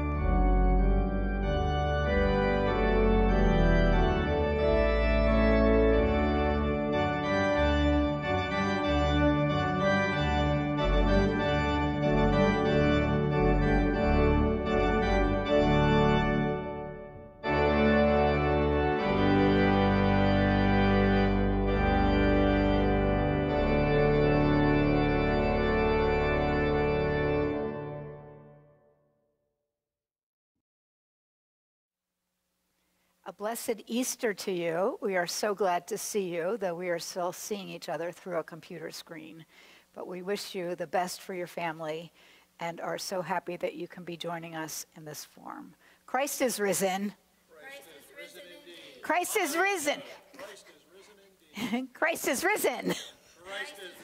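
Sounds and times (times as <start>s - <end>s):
organ playing sustained chords: 0.0s - 28.8s, 49.1s - 50.3s, 51.6s - 53.1s.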